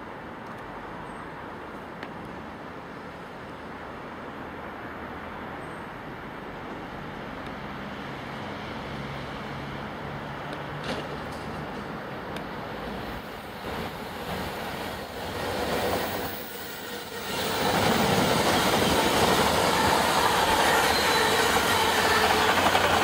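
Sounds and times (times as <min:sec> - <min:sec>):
diesel locomotive engine: 0:07.8 - 0:23.0.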